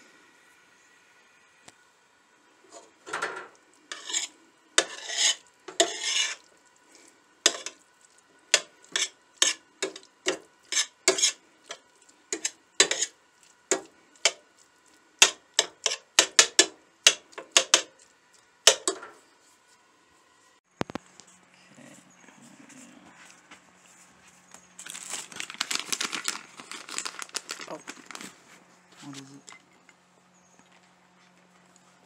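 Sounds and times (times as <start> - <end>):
metal spoon scraping a skillet: 2.7 - 6.5, 7.4 - 7.8, 8.5 - 14.4, 15.2 - 19.1.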